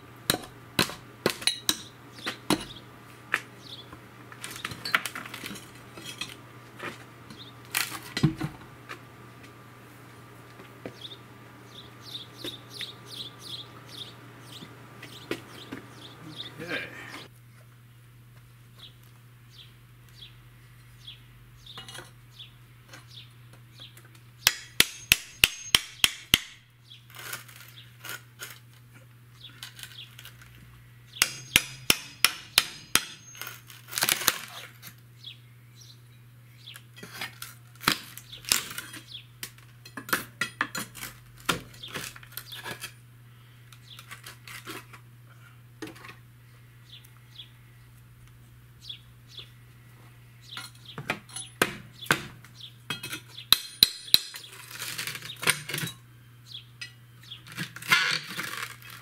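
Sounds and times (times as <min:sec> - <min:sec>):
hammer striking window frame: 0:31.2 - 0:33.2
pry bar on frame: 0:31.2 - 0:34.4.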